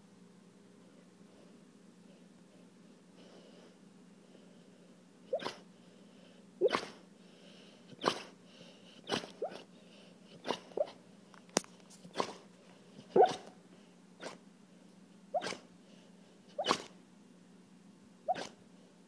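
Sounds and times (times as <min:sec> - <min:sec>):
dog squeaking: 0:05.3 - 0:05.6, 0:09.1 - 0:09.6, 0:13.1 - 0:13.5, 0:15.4 - 0:15.6, 0:16.6 - 0:16.9, 0:18.3 - 0:18.6
dog huffing in sleep: 0:05.3 - 0:05.7, 0:06.6 - 0:07.0, 0:07.9 - 0:09.7, 0:15.3 - 0:15.7.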